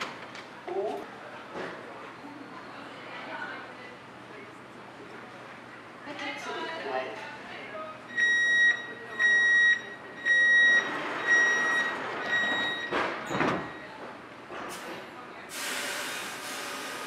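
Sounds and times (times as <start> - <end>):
door warning beeps: 8.1 - 14.0
sliding doors shutting: 10.8 - 13.8.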